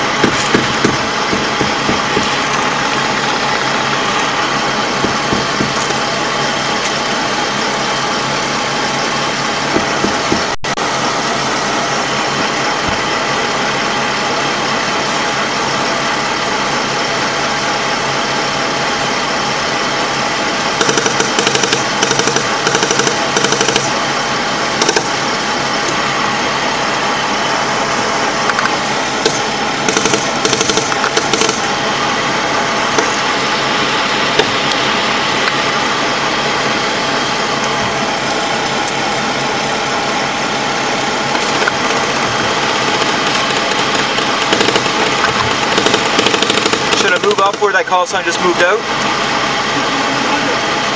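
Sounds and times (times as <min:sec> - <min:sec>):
armoured vehicle diesel engine running: 0:00.0 - 0:50.9
bursts of rapid sharp cracks: 0:20.8 - 0:24.0, 0:24.8 - 0:25.2, 0:29.2 - 0:31.7, 0:41.5 - 0:47.7.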